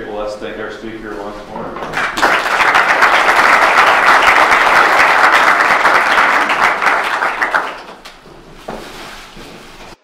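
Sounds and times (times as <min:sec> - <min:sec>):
audience applauding: 0:01.8 - 0:08.1.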